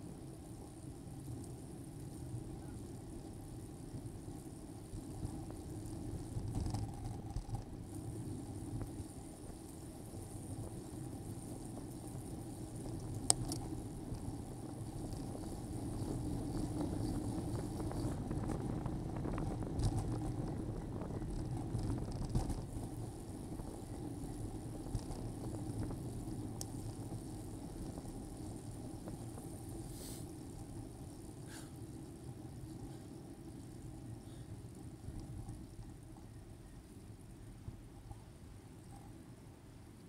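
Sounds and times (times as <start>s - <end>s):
bicycle road rumble: 0.0s - 40.0s
wind noise: 2.0s - 33.0s.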